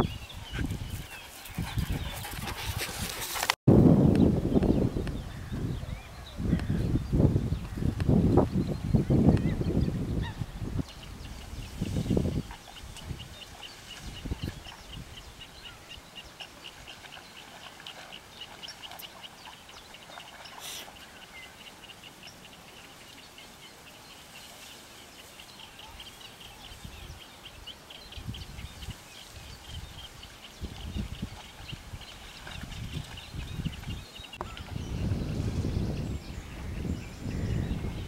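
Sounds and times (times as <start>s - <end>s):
faint outdoor hiss: 10.8s - 32.5s.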